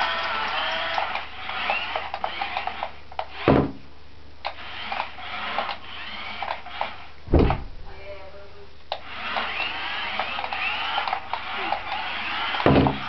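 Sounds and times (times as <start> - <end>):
toy car motors whining: 0.0 - 3.5, 4.4 - 7.1, 8.9 - 13.0
loud thump: 3.5 - 3.8, 7.3 - 8.0.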